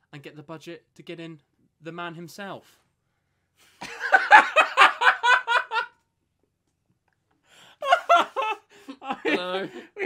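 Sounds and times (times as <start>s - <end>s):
man laughing heartily: 3.8s - 5.9s, 7.8s - 10.0s.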